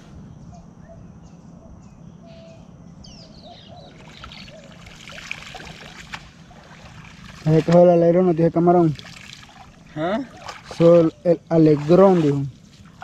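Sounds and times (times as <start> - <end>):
wading water sloshing: 3.9 - 13.0
net splashing on water: 4.0 - 8.1, 8.8 - 11.0, 11.6 - 13.0.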